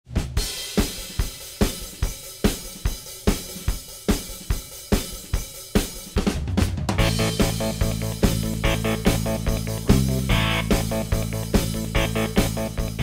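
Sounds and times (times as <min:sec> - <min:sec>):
drum kit beat: 0:00.0 - 0:13.0
bass line: 0:07.0 - 0:13.0.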